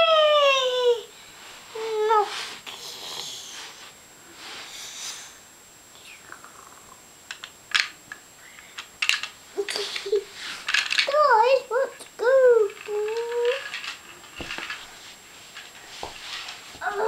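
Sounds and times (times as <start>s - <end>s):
child humming: 0.0s - 1.1s, 1.7s - 3.8s, 11.3s - 13.7s, 16.8s - 17.0s
breathy hissing mouth noises: 1.8s - 7.0s
plastic toys clicking: 8.8s - 10.1s, 10.7s - 11.2s, 12.7s - 14.0s.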